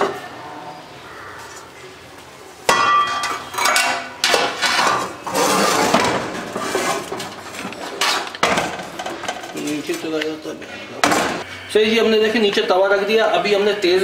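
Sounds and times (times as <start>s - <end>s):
cooking pot clanking on metal grate: 2.7s - 5.1s
metal scraping on metal: 3.0s - 8.3s.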